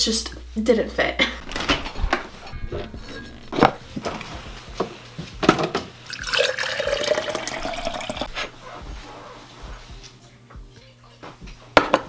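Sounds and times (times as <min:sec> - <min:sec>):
liquid pouring over ice: 0:06.1 - 0:08.3.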